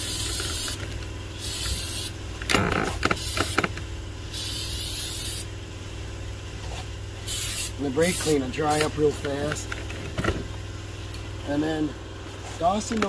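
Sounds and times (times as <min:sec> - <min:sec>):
aerosol can spraying: 0:00.0 - 0:00.8, 0:01.4 - 0:02.1, 0:03.1 - 0:03.7, 0:04.3 - 0:05.5, 0:07.3 - 0:09.0.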